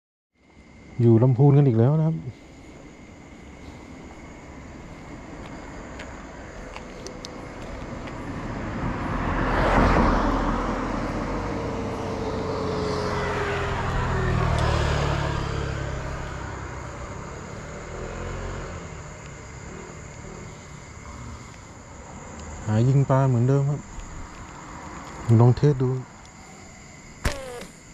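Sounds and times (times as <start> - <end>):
vehicles passing by: 0.6 - 27.9
car engine: 2.8 - 23.0.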